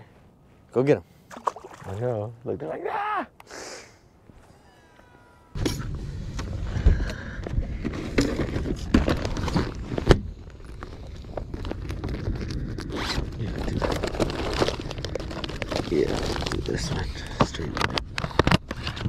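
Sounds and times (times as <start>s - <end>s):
plastic bags crinkling: 13.5s - 17.1s.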